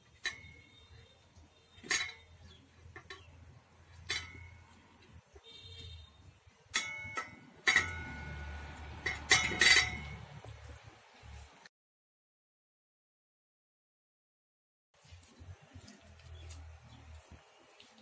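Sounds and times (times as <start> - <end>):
metal plate and bowl clinking: 0.2 - 0.7, 1.8 - 4.8, 6.8 - 10.5.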